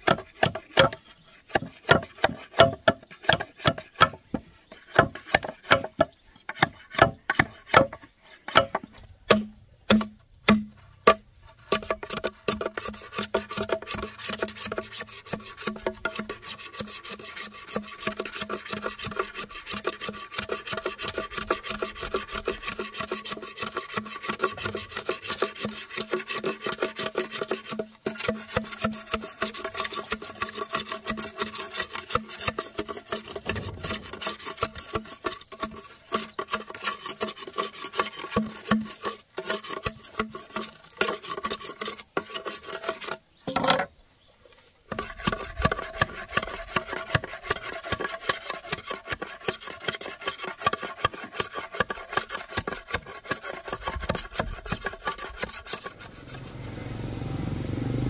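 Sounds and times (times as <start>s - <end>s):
fast rasping strokes: 11.6s - 43.2s, 44.9s - 56.6s.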